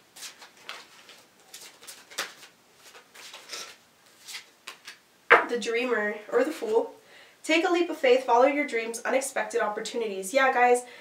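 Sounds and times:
cards being shuffled: 0.2s - 5.0s.

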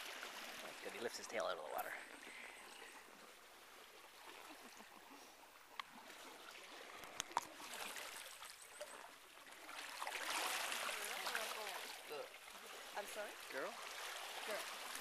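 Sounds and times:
water splashing and trickling: 0.0s - 15.0s.

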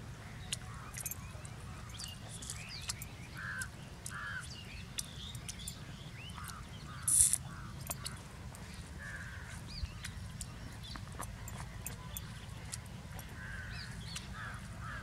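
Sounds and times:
small birds chirping: 0.0s - 15.0s
crows cawing: 3.3s - 4.5s, 6.4s - 8.2s, 9.0s - 9.6s, 13.3s - 15.0s.

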